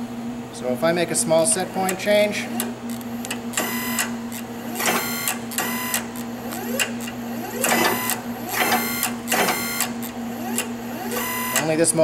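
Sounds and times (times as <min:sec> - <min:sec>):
steady low hum: 0:00.0 - 0:12.0
servo motor whining bursts: 0:02.9 - 0:11.7.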